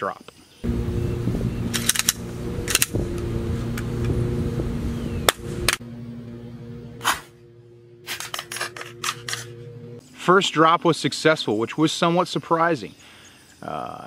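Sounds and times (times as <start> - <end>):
machine hum: 0.6 - 10.0.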